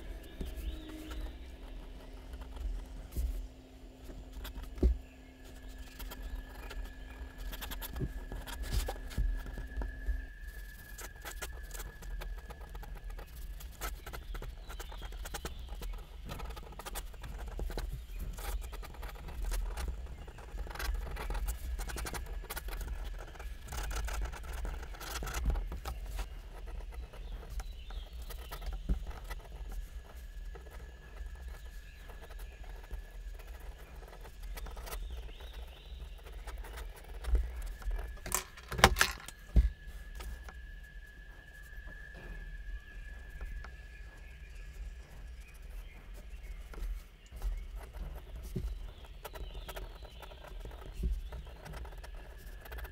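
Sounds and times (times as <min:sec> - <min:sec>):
faint high whine: 0:00.0 - 0:16.2
pen nib scratching on paper: 0:04.2 - 0:09.7, 0:10.6 - 0:39.1, 0:45.4 - 0:52.9.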